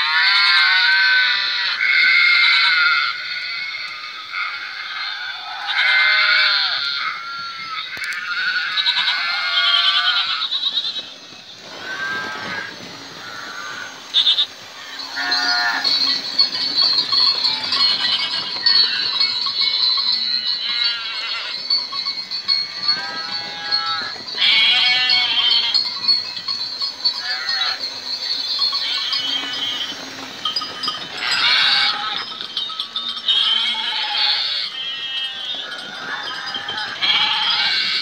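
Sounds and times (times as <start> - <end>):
goat and sheep bleats: 0.0 - 11.0, 22.5 - 25.8, 31.2 - 32.3, 33.3 - 38.0.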